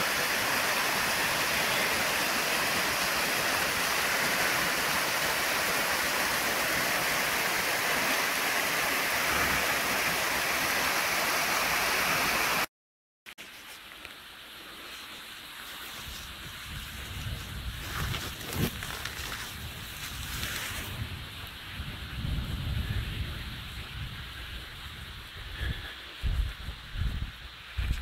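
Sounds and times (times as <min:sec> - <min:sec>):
waterfall splashing over rocks: 0:00.0 - 0:12.7.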